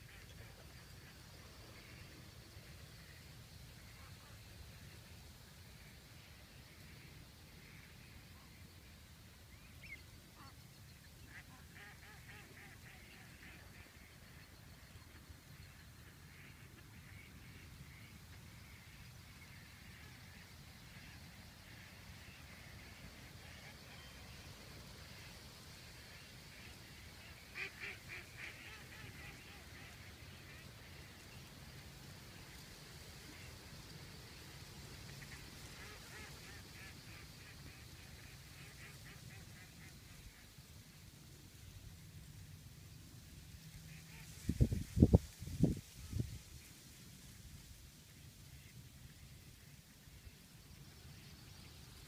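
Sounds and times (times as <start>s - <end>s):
faint duck quacks: 0.0s - 5.0s, 9.6s - 31.8s, 32.4s - 34.4s, 35.0s - 40.7s, 43.8s - 45.2s
ducks quacking: 26.5s - 31.0s.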